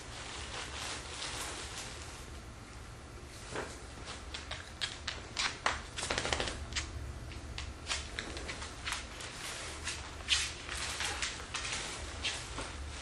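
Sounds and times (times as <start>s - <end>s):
gift bag and paper rustling: 0.0s - 2.3s, 8.5s - 13.0s
dog claws clicking on wooden floor: 4.3s - 11.8s.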